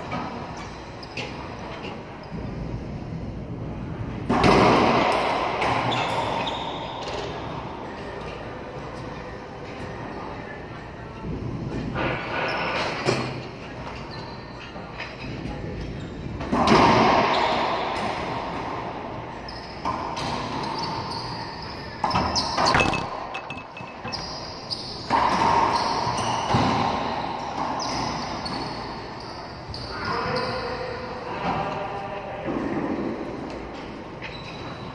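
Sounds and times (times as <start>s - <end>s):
racquetball hits echoing: 22.0s - 25.7s.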